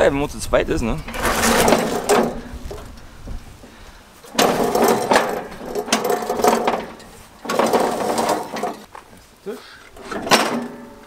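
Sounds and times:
metal parts rattling and scraping: 1.0 - 3.1, 4.2 - 8.9, 9.9 - 11.0.

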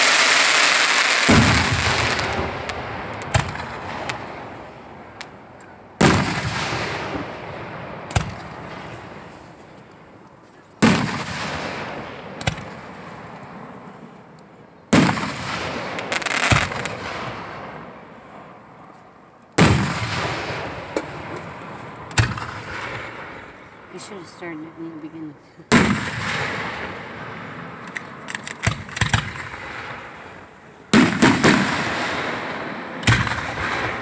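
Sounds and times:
sharp firework pops: 0.0 - 4.4, 5.2 - 7.3, 8.1 - 9.2, 10.8 - 13.5, 14.9 - 17.5, 19.5 - 23.3, 25.7 - 30.2, 30.9 - 34.0
firework booms with echo: 0.0 - 5.2, 6.0 - 9.4, 10.8 - 13.3, 14.9 - 18.2, 19.6 - 23.8, 25.7 - 34.0.

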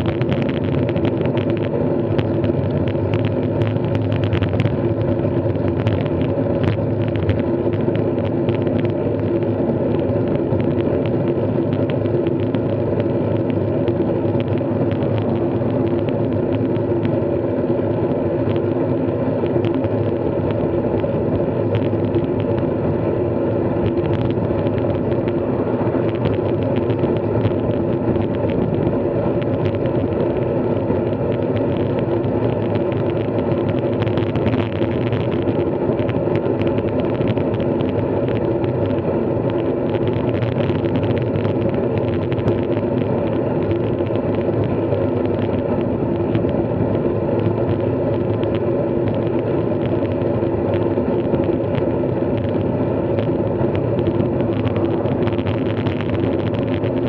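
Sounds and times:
small ticks: 0.0 - 17.2, 18.4 - 22.7, 23.8 - 57.0
bike ride drone: 0.0 - 57.0.

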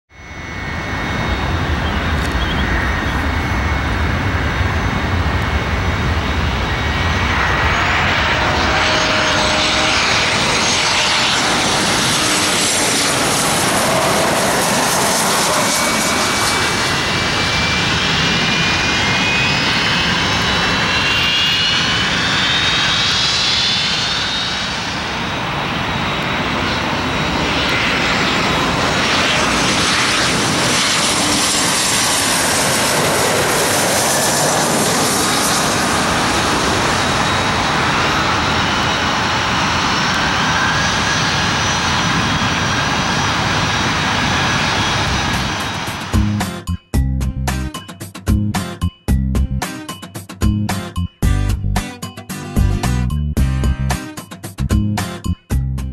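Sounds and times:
jet plane rumble and whine: 0.1 - 55.9.

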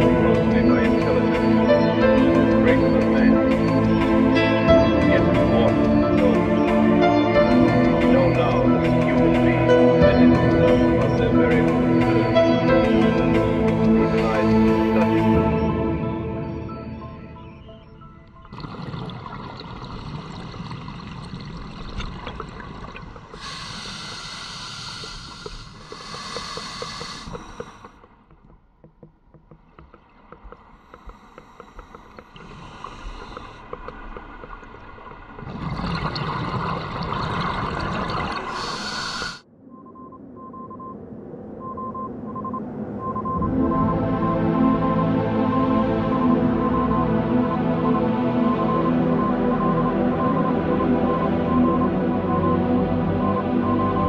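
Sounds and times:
scuba breathing bubbles: 18.5 - 28.0, 31.0 - 34.4, 35.4 - 39.4
steady underwater hiss: 18.6 - 28.0, 30.9 - 34.3, 38.0 - 39.4.

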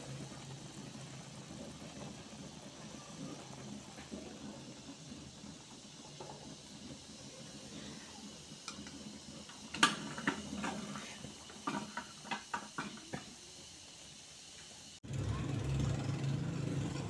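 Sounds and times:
metal spoon scraping a wok: 9.8 - 12.9.

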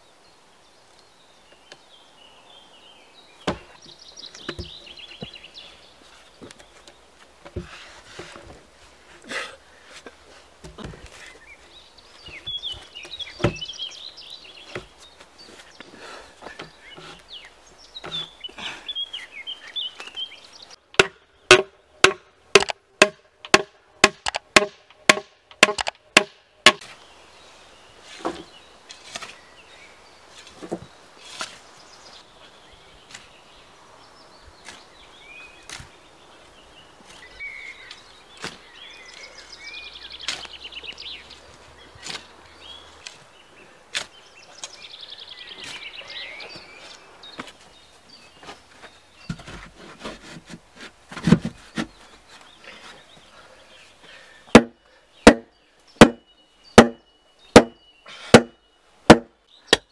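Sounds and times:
birds chirping: 0.0 - 59.9
tool knocking on log: 21.0 - 26.8, 56.0 - 56.2, 56.8 - 57.0, 57.6 - 57.8
shovel digging soil: 28.1 - 29.5, 30.3 - 31.7, 40.2 - 40.6, 42.0 - 42.4, 43.9 - 44.8.

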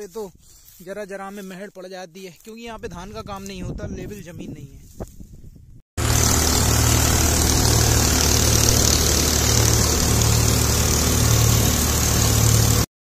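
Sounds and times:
tractor diesel engine running: 6.0 - 12.9.

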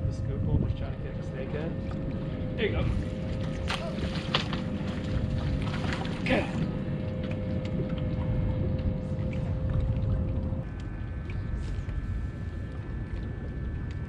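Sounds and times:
thin steady hum: 0.0 - 14.0
water moving against hull: 0.0 - 14.0
wind: 0.0 - 14.0.

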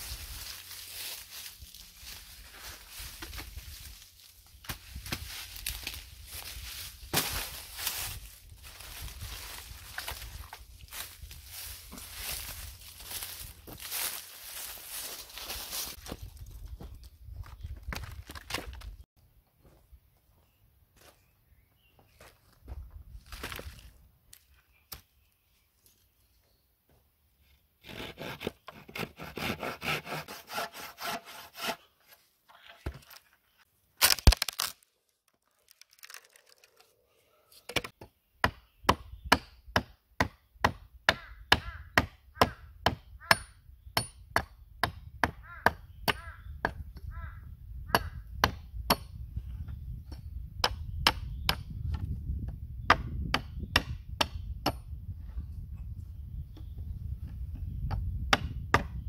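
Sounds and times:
hand saw rasping through log: 27.8 - 31.9
wood cracking: 34.0 - 36.9
hatchet chopping wood: 37.9 - 46.8, 47.9 - 49.2, 50.6 - 52.0, 52.9 - 54.8, 57.9 - 59.0.

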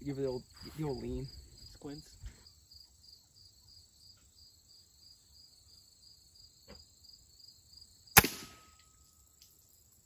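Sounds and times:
silenced pellet rifle shot: 8.1 - 9.1.

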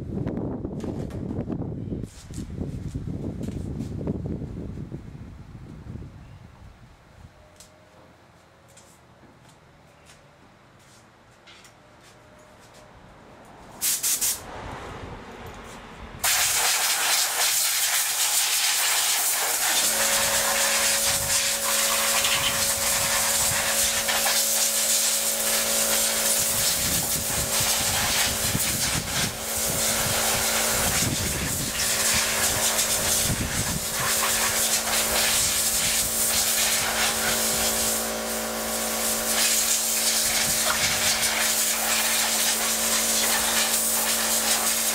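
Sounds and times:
compressed air hissing from nozzle: 13.8 - 14.4, 16.2 - 44.9
steady machine hum: 19.3 - 44.9.

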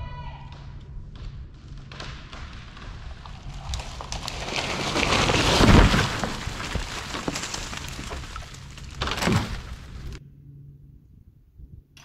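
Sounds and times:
tree hitting ground thud: 1.5 - 10.2
tree limbs cracking and crashing: 1.5 - 10.2
branches breaking crackle: 1.6 - 10.2.

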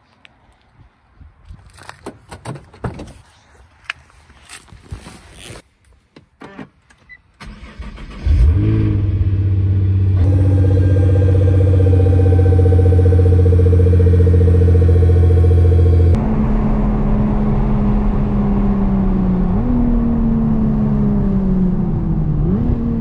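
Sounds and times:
car engine starting and idling: 7.4 - 23.0.

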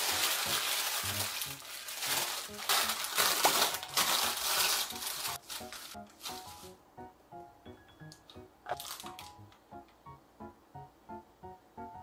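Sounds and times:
paper crinkling: 0.0 - 6.8, 8.7 - 9.4.

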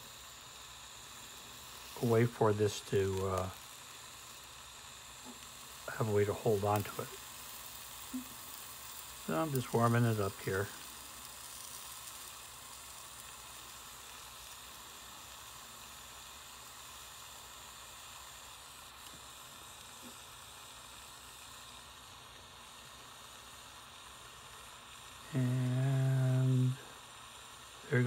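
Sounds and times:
gas torch hissing: 0.0 - 28.0.

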